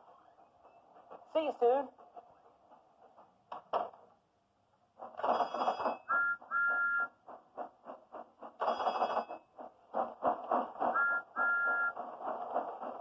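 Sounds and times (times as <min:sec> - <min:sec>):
steam engine chuffing: 0:00.0 - 0:03.5, 0:04.8 - 0:13.0.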